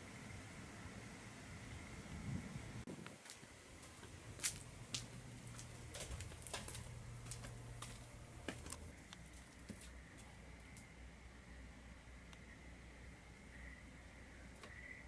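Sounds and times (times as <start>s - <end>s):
footsteps on concrete: 3.2s - 10.3s.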